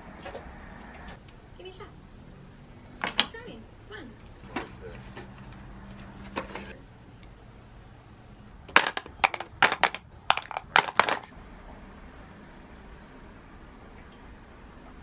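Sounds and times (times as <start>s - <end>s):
makeup items clacking together: 8.7s - 11.3s.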